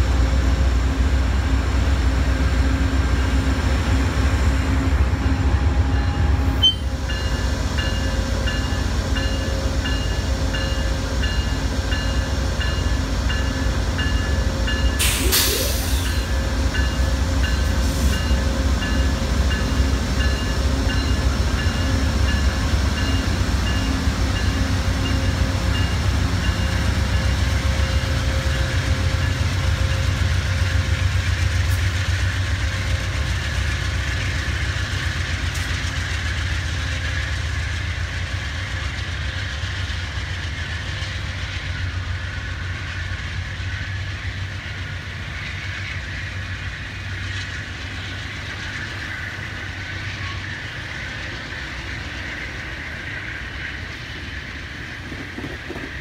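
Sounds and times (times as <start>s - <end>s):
locomotive engine rumble: 0.0s - 56.0s
wheel and rail noise: 0.0s - 56.0s
pulsing high ringing tone: 5.2s - 15.0s.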